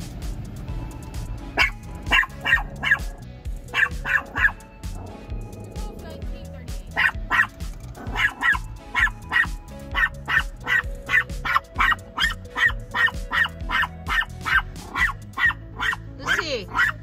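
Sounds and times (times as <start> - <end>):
small dog yapping: 1.6 - 3.1, 3.7 - 4.6, 6.9 - 17.0.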